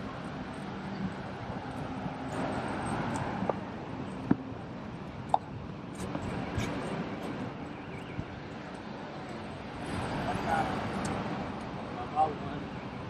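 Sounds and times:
road traffic: 0.0 - 13.0.

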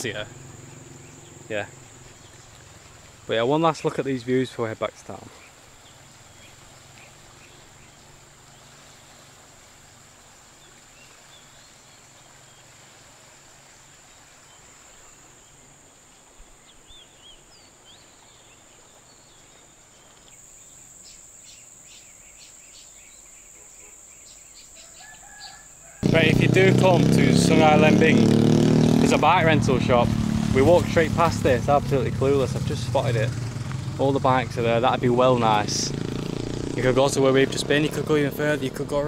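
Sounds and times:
high-pitched drone of jungle insects: 0.0 - 4.9.

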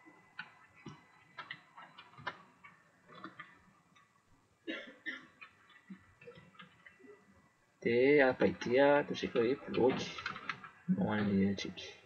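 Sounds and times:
computer keyboard typing: 0.4 - 3.5, 8.5 - 10.8.

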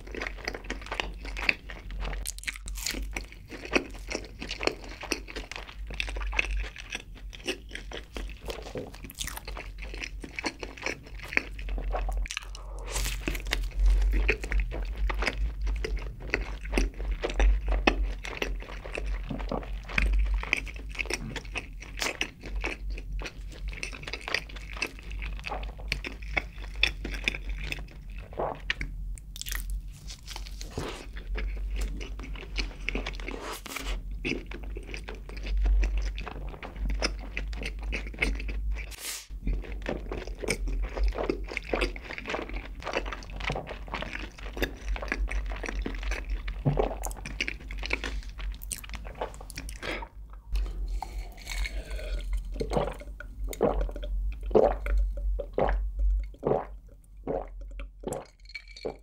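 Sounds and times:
close chewing and crunching: 0.0 - 59.0
gulping a drink: 3.1 - 28.9, 34.2 - 59.0
wet sticky mouth sounds: 44.6 - 56.7.

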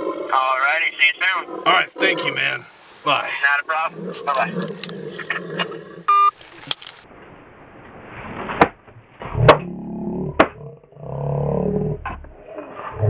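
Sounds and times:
phone beep: 6.1 - 6.4.

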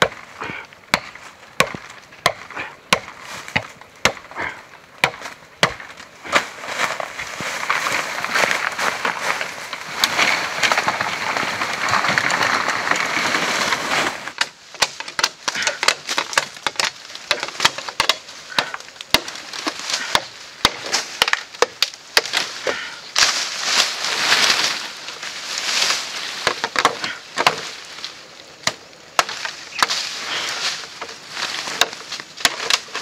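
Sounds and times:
bamboo leaves rustling: 0.0 - 33.0
machete striking bamboo pole: 0.9 - 4.4, 5.0 - 6.5, 14.4 - 22.5, 31.7 - 33.0.

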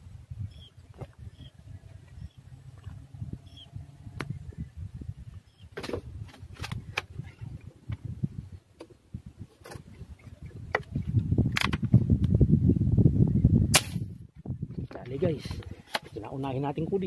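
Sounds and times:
low handling rumble on microphone: 0.0 - 17.0
air rifle handling clicks: 11.5 - 11.9.

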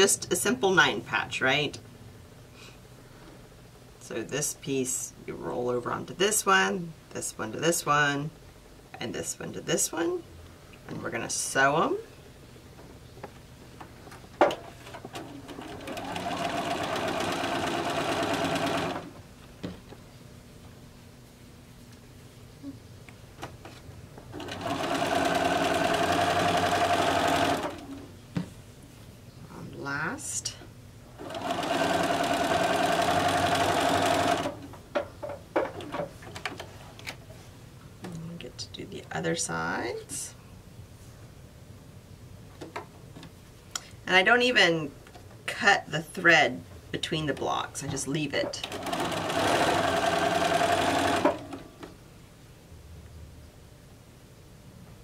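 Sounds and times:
sewing machine stitching: 14.8 - 19.1, 24.4 - 28.0, 31.2 - 34.6, 48.6 - 51.6.

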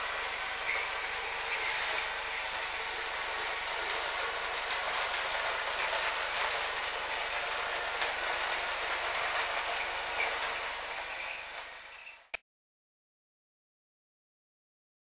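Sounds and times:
toy truck motor whirring: 0.0 - 12.4.

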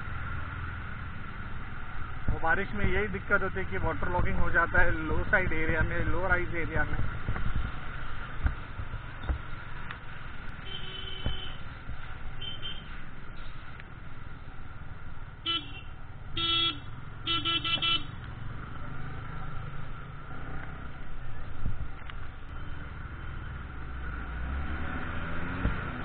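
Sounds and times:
motorcycle riding on wet road: 0.0 - 2.5, 5.6 - 14.6, 16.8 - 26.0
vehicle horn honking: 10.6 - 11.6, 15.5 - 18.1.

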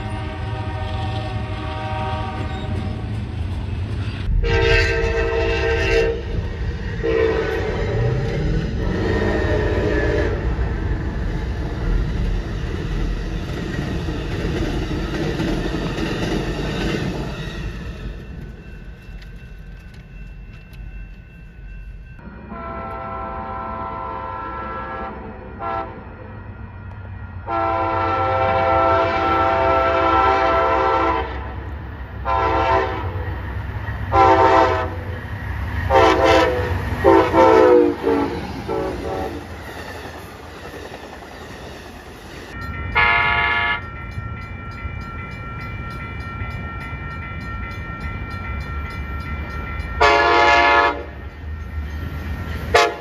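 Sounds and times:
train horn blasts: 0.0 - 3.0, 4.3 - 8.1, 8.8 - 10.6, 22.3 - 26.2, 27.4 - 31.6, 32.2 - 33.2, 34.1 - 35.1, 35.9 - 39.6, 43.0 - 43.9, 50.0 - 51.2, 52.7 - 53.0
low rail rumble: 0.0 - 53.0.

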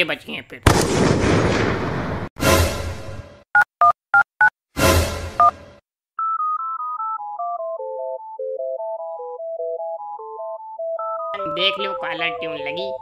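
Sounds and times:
electronic caller-tune melody: 6.2 - 13.0.

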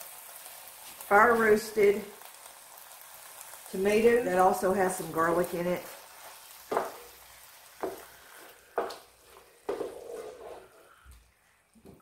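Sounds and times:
food sizzling in skillet: 0.0 - 11.6
wooden spoon scraping skillet: 5.8 - 11.0.

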